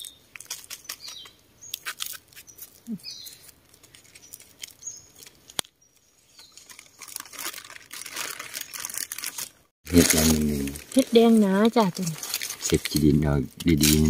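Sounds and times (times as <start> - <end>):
high bird chirps: 0.0 - 3.5, 4.1 - 5.2, 5.8 - 7.1
dry leaves rustling: 0.0 - 14.0.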